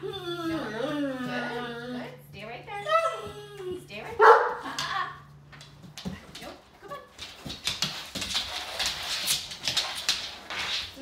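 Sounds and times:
dog whining softly: 0.0s - 2.1s.

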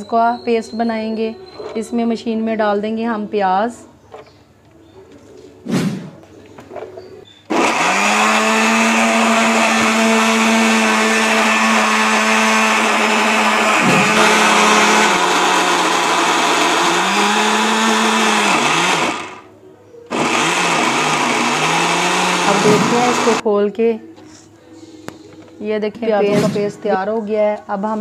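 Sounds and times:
electric blender motor grinding: 7.5s - 19.5s, 20.1s - 23.4s.

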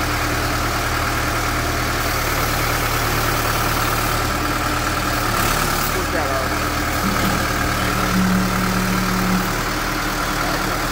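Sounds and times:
tractor engine running: 0.0s - 10.9s
high whine: 7.0s - 10.7s.

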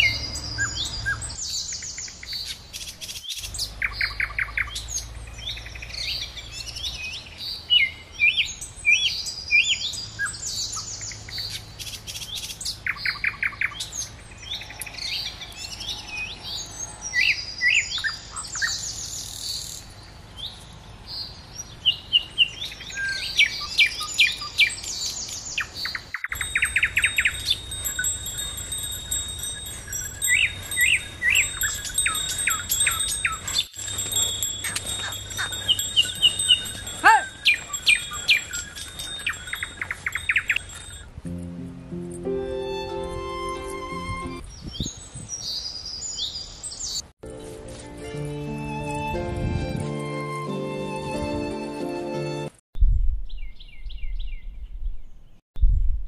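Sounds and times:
small birds chirping: 0.0s - 41.1s.

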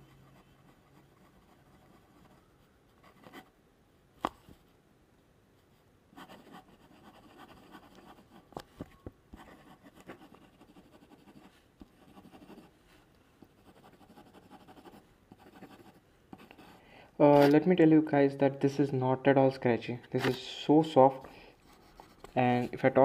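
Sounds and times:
pen nib scratching on paper: 6.2s - 8.6s, 9.3s - 12.8s, 13.4s - 16.8s.

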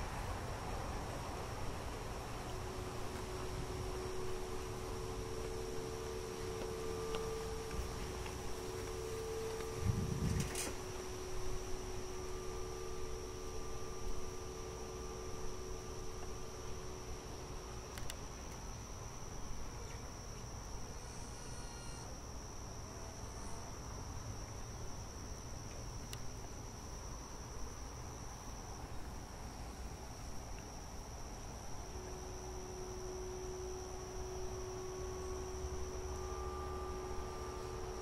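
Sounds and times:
insects chorus: 0.0s - 38.0s
low outdoor hiss: 0.0s - 38.0s
faint held clarinet note: 2.4s - 17.0s, 21.0s - 22.1s, 31.9s - 38.0s.

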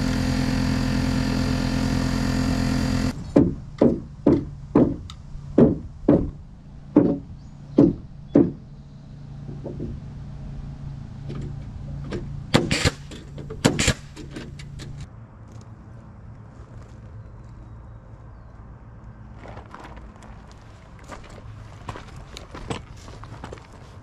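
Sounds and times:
hammer striking wood: 3.3s - 6.4s, 7.0s - 8.6s, 9.5s - 10.0s.

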